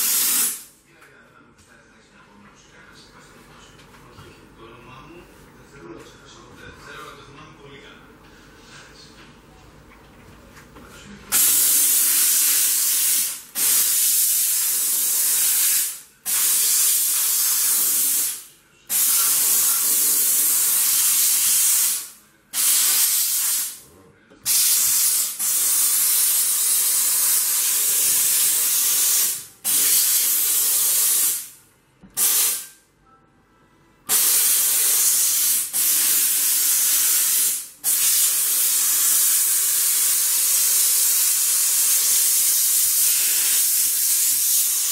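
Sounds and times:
steam cleaner hissing: 0:00.0 - 0:00.7, 0:11.3 - 0:23.8, 0:24.4 - 0:31.6, 0:32.2 - 0:32.7, 0:34.1 - 0:44.9.

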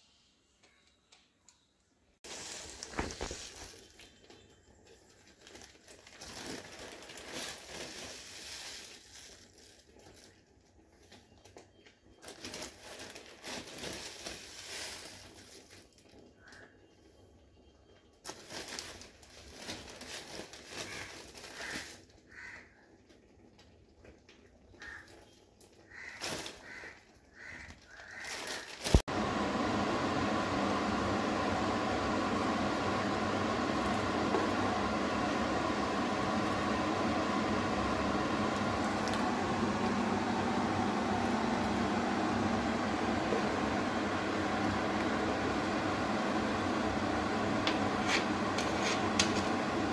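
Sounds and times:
machine hum: 0:28.0 - 0:49.9.

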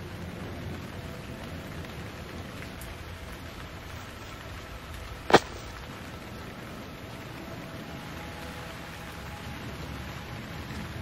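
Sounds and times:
rain falling on a surface: 0:00.0 - 0:11.0
sharp loud crack: 0:05.3 - 0:05.8.

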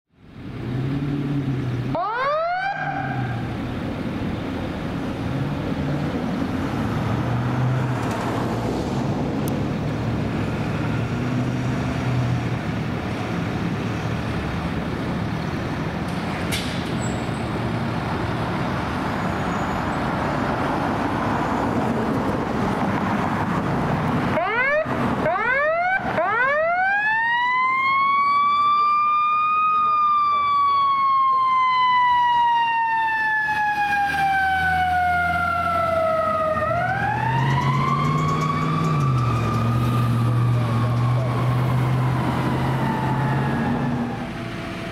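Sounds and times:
siren chirping: 0:24.4 - 0:44.9.

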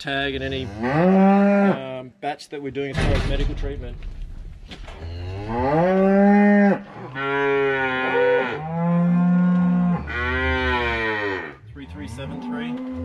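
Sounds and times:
cattle mooing: 0:00.4 - 0:01.8, 0:05.0 - 0:13.0.

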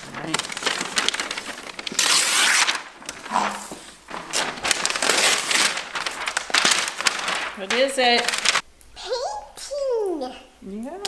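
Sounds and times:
wrapping paper tearing: 0:00.0 - 0:08.6.

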